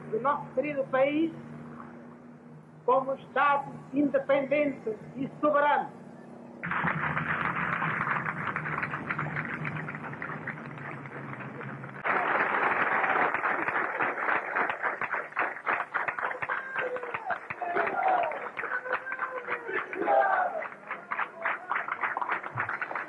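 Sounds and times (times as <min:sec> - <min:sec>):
low hum: 0:00.0 - 0:17.3
crowd applauding and cheering: 0:06.6 - 0:23.0.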